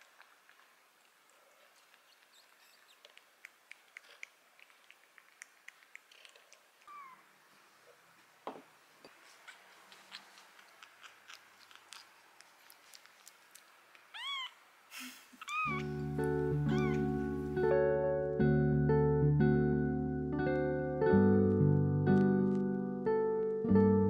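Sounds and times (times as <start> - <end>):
kitten mewing: 6.2 - 7.3, 14.1 - 17.4.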